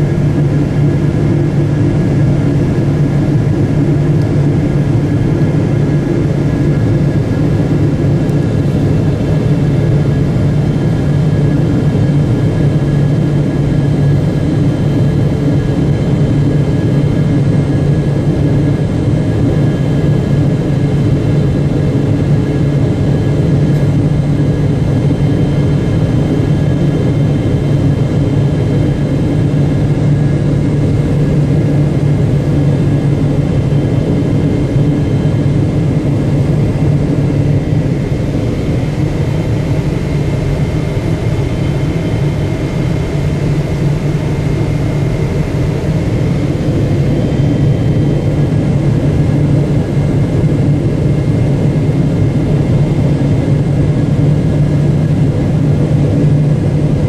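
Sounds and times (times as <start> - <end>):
jet engine low drone: 0.0 - 57.0.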